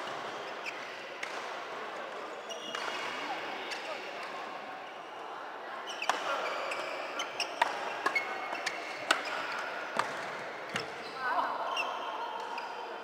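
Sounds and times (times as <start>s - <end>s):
rackets hitting shuttlecock: 0.0s - 1.7s, 7.4s - 11.0s
echoing hits from other courts: 7.4s - 11.0s.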